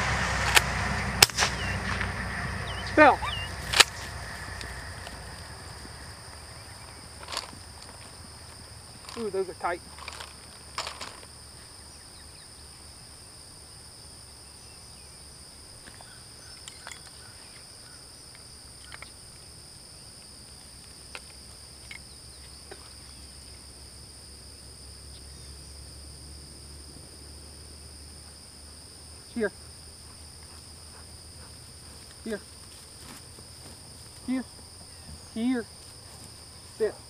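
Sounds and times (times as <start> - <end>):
low steady rumble: 0.0 - 15.8
insects shrill droning: 0.0 - 37.0.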